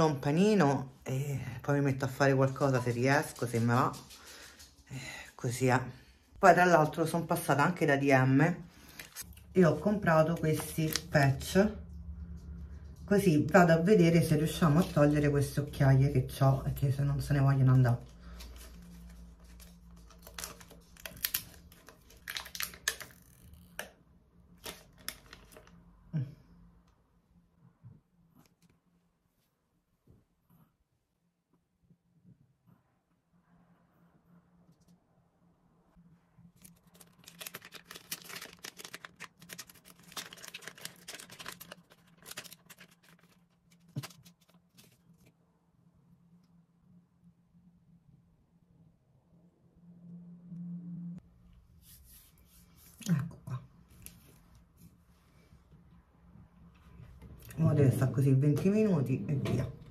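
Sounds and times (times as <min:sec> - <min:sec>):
sachet crinkling and tearing: 0:18.4 - 0:23.8, 0:24.5 - 0:25.9, 0:36.5 - 0:45.3
low steady hum: 0:23.8 - 0:59.9.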